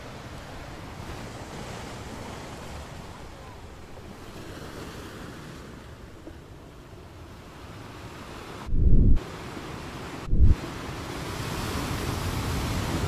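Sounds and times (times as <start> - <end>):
ocean surf breaking: 0.0 - 13.0
wind noise on microphone: 8.6 - 9.2, 10.2 - 10.8.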